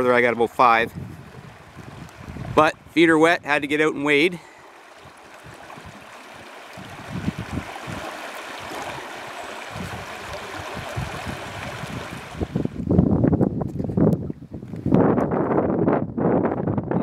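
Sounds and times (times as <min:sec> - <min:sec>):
water rushing over rocks: 0:01.3 - 0:12.8.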